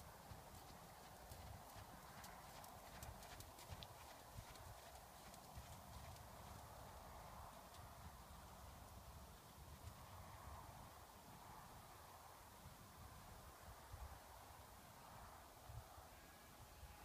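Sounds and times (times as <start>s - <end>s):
horse hoofbeats on sand: 0.0s - 7.0s.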